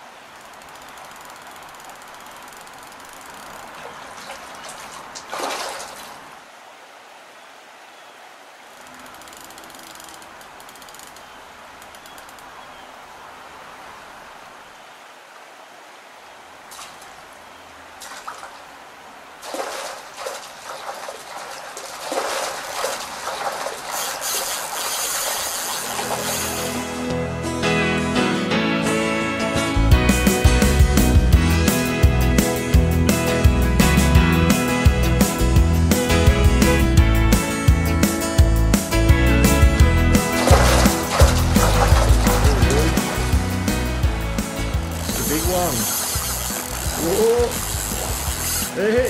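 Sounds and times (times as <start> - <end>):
river water rushing: 0.0 - 27.6, 36.8 - 49.0
short rough noises: 19.4 - 27.2, 40.2 - 43.9, 44.5 - 48.9.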